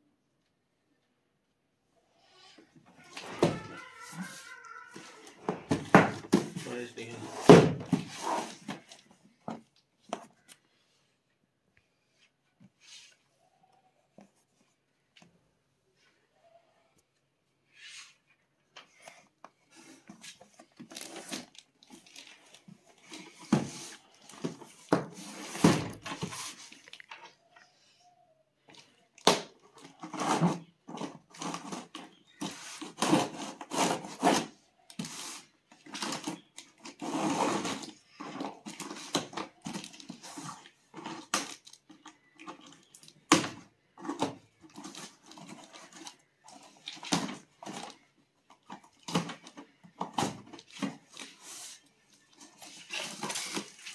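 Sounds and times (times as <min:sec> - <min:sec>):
cardboard and packing rustling: 0:02.8 - 0:10.5, 0:18.9 - 0:27.4, 0:29.7 - 0:53.9
tape tearing: 0:07.2 - 0:09.0, 0:20.3 - 0:24.0, 0:29.2 - 0:41.9.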